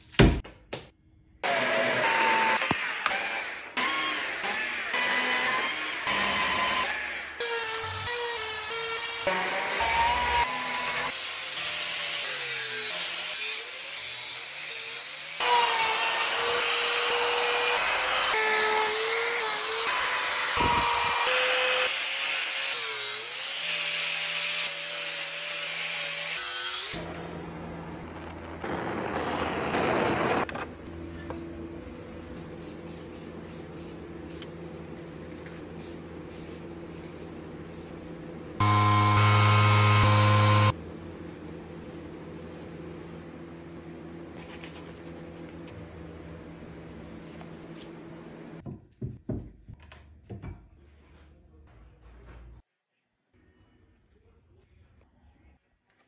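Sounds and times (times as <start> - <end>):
angle grinder whine: 38.6 - 40.7
power tool steady hum: 38.6 - 40.8.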